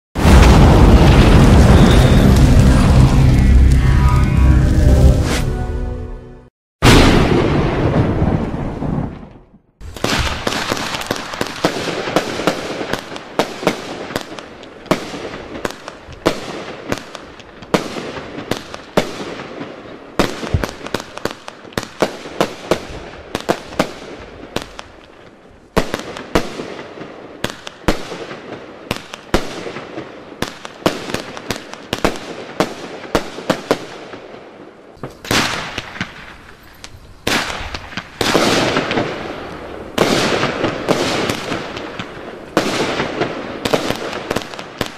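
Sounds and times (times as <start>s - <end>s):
fireworks bangs: 0.2s - 5.4s, 6.8s - 34.3s, 35.0s - 44.9s
dense rush of noise: 0.2s - 6.0s.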